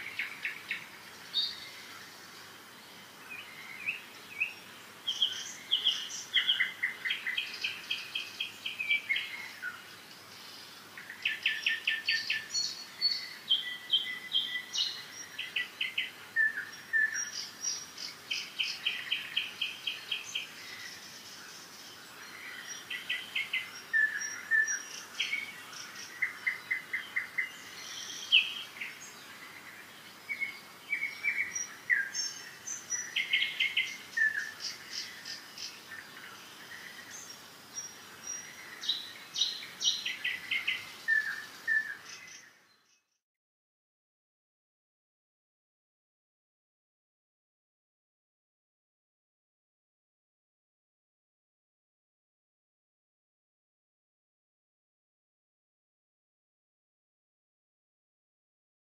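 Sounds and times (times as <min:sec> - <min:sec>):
songbird trilling and chirping: 0:00.0 - 0:02.2, 0:03.3 - 0:43.2.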